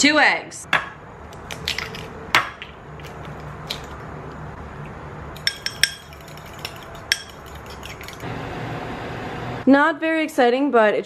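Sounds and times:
fork clinking against glass: 5.4 - 8.1
eggs whisked with fork: 5.4 - 8.3.

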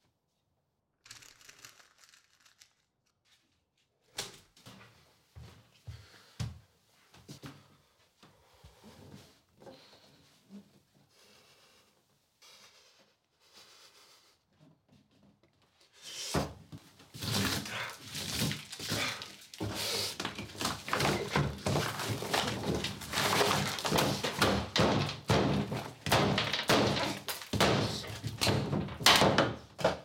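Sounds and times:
board model smashed and torn apart: 17.2 - 29.9.

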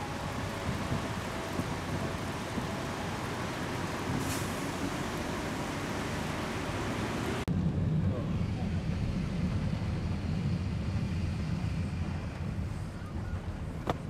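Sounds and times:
car cabin low rumble: 0.0 - 4.2, 11.4 - 14.0
rain hiss: 0.0 - 7.4
wet street traffic: 0.0 - 14.0.

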